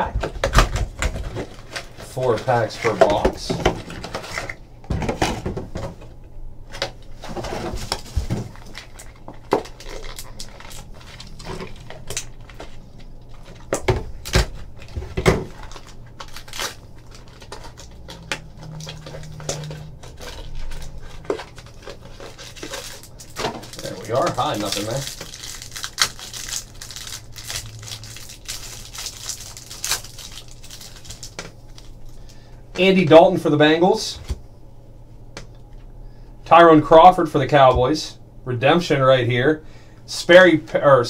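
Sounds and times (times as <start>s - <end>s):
faint low hum: 0.0s - 41.0s
packs rustling: 7.0s - 32.2s.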